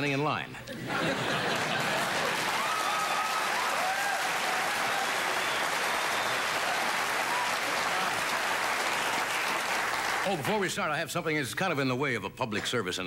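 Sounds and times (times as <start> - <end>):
audience applauding: 1.0 - 10.7.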